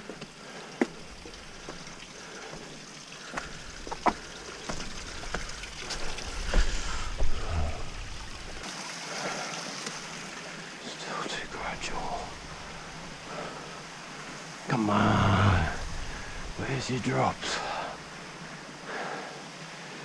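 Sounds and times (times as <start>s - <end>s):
creek water running: 0.0s - 20.0s.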